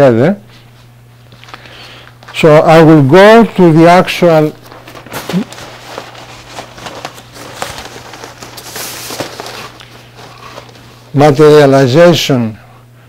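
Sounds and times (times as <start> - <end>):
steady low hum: 0.0 - 13.0
heavy paper rustling and crackling: 4.3 - 11.7.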